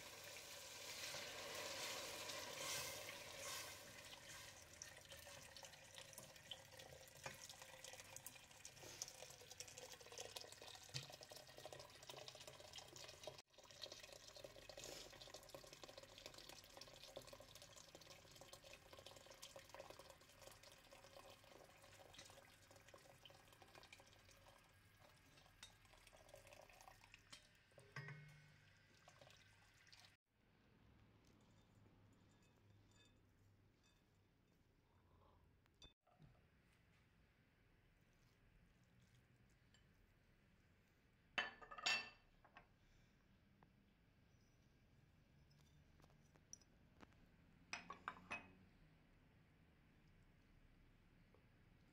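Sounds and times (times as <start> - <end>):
tap water running into pot: 0.0 - 30.2
wooden spoon stirring: 0.8 - 7.7, 37.9 - 40.5.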